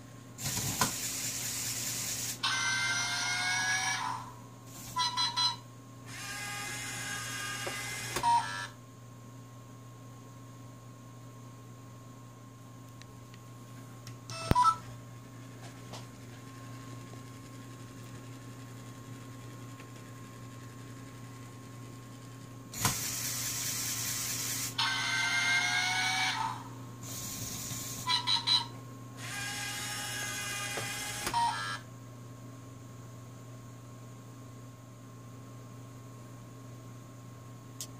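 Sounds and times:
motors whirring gear train: 0:00.4 - 0:02.9, 0:06.1 - 0:08.6, 0:22.8 - 0:28.1, 0:29.2 - 0:31.5.

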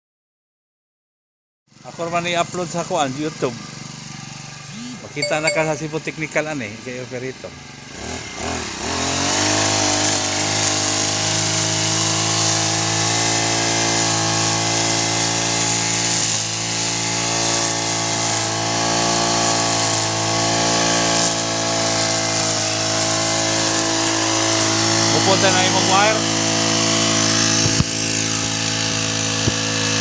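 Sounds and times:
brush cutter engine revving: 0:07.5 - 0:30.0.

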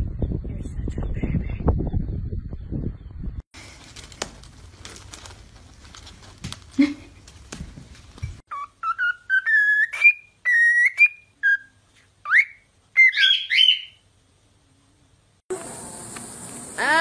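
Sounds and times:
cockatiel whistling a tune: 0:08.5 - 0:14.0.

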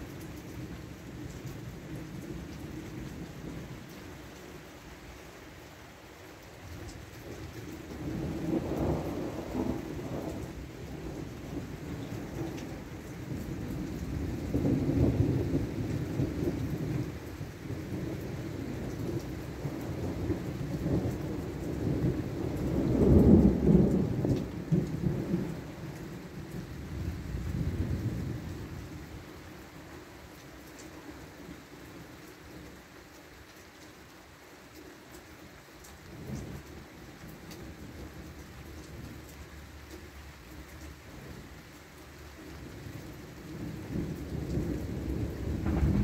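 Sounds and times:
rain hiss: 0:00.0 - 0:46.0
thunder rumbling: 0:08.0 - 0:29.1, 0:43.5 - 0:46.0.

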